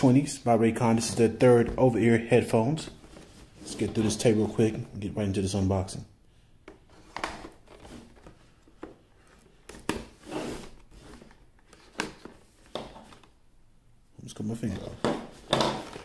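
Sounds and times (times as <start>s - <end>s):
tape scraping and rustling: 6.9s - 13.3s.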